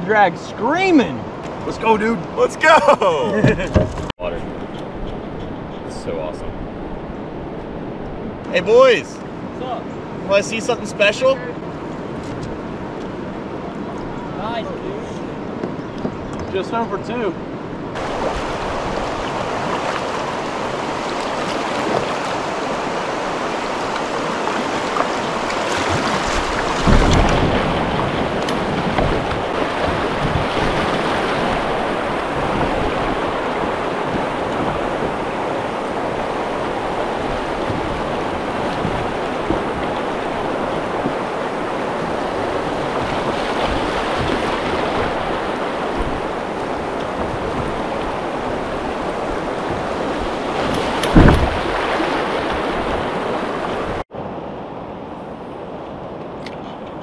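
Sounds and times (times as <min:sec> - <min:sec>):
low thump: 0:03.4 - 0:04.1, 0:26.8 - 0:27.8, 0:51.0 - 0:51.8
wind on microphone: 0:17.4 - 0:54.0
river water rushing over rocks: 0:18.0 - 0:54.6.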